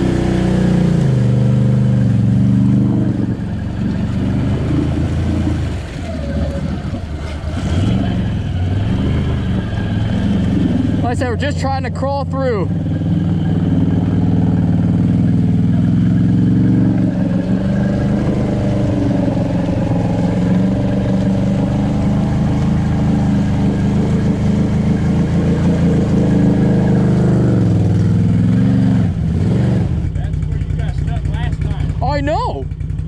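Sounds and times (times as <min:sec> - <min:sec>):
atv engine under load: 0:00.0 - 0:33.0.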